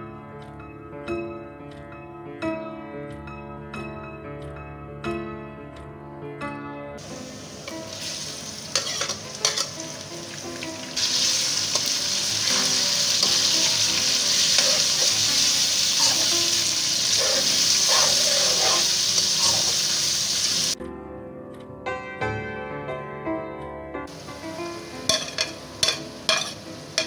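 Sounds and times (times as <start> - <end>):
chicken sizzling in oil: 7.0 - 20.8, 24.1 - 27.0
spatula scraping a pan: 8.7 - 9.8, 11.1 - 19.9, 25.1 - 27.0.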